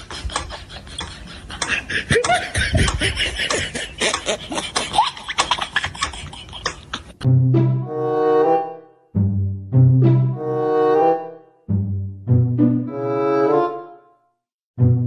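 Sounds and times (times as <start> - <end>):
snickering laughter: 0.0 - 7.2.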